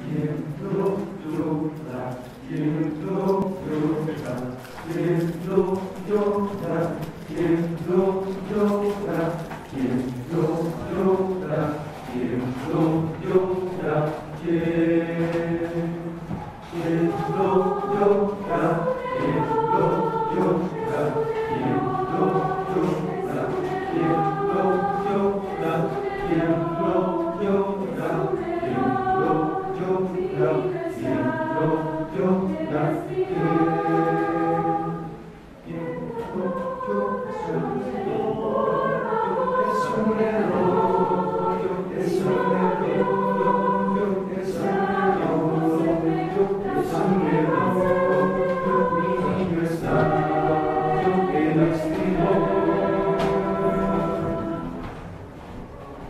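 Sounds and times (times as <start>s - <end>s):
choir singing a cappella: 0.0s - 55.6s.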